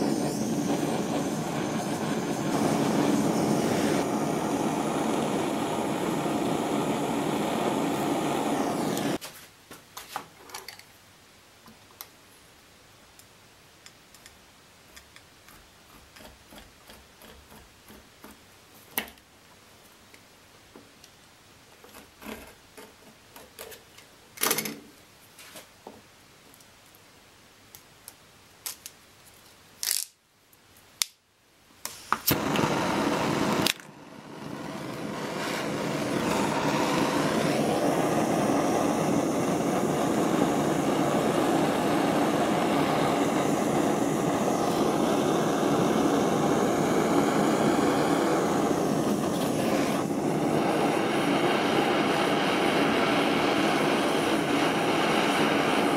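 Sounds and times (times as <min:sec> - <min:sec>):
gas torch hissing: 0:00.0 - 0:09.2, 0:31.8 - 0:55.9.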